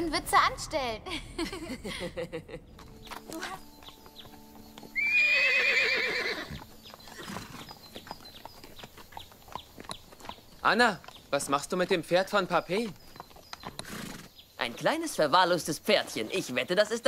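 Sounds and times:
horse whinnying: 0:04.9 - 0:07.7, 0:13.8 - 0:14.3.

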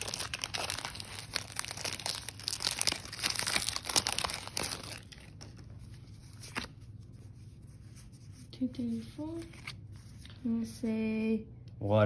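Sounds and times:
foil wrapper crinkling: 0:00.0 - 0:05.8.

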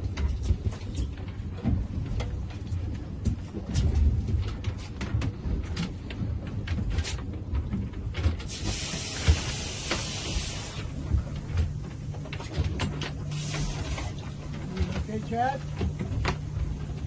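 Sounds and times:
steady hiss: 0:08.5 - 0:11.0.

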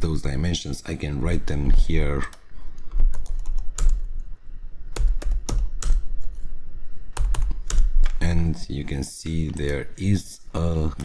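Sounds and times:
typing on computer keyboard: 0:03.1 - 0:04.1, 0:04.9 - 0:06.0.

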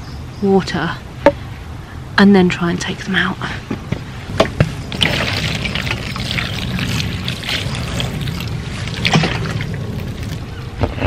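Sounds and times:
constant low rumble: 0:00.0 - 0:11.0
water splashing onto soil: 0:04.9 - 0:10.5.

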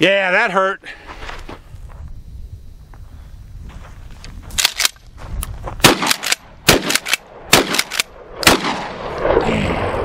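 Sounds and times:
shotgun shots: 0:05.8 - 0:09.4.

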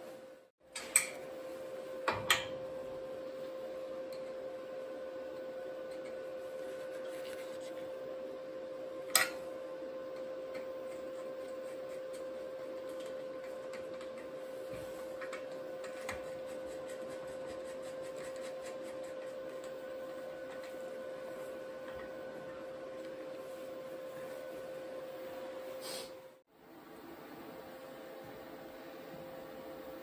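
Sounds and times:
steady hum: 0:00.0 - 0:30.0.

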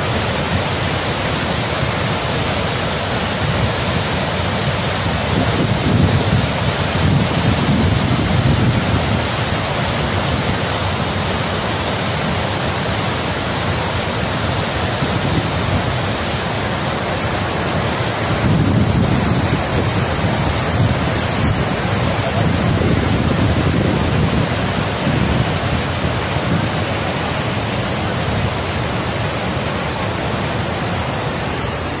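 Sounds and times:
river rapids rushing over boulders: 0:00.0 - 0:32.0
wind buffeting microphone: 0:05.2 - 0:09.4, 0:18.1 - 0:26.9.

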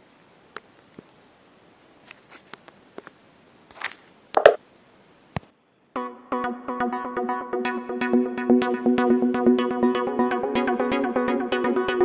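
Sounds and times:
rustle: 0:00.0 - 0:05.5
faint background hiss: 0:00.0 - 0:06.0.

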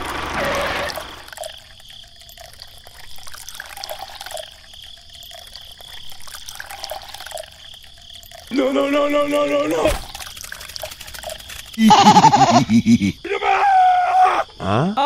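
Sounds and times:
small motor running: 0:00.0 - 0:01.3
faint water trickle: 0:00.0 - 0:11.9.

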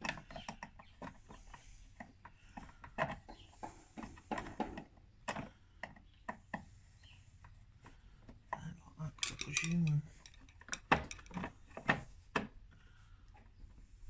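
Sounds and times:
tools clicking and tapping: 0:08.6 - 0:12.5.

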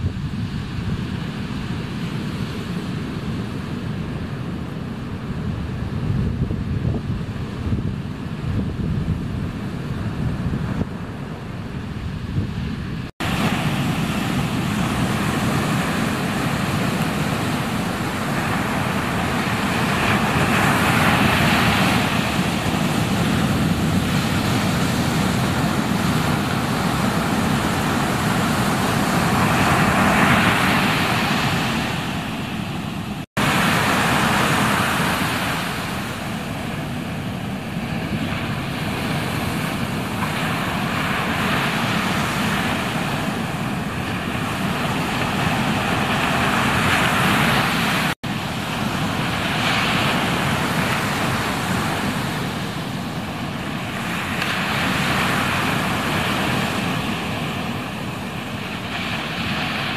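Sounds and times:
waves breaking: 0:00.0 - 0:59.9.

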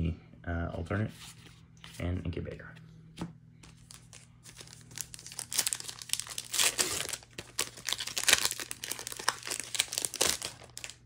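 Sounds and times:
foil wrapper crinkling and tearing: 0:03.8 - 0:11.0.

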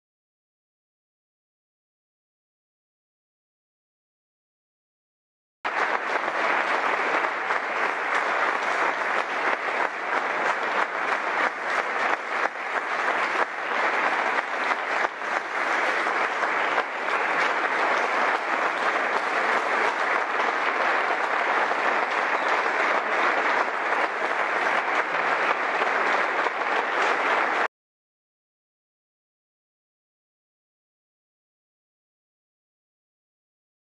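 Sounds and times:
audience applause: 0:05.7 - 0:27.7.

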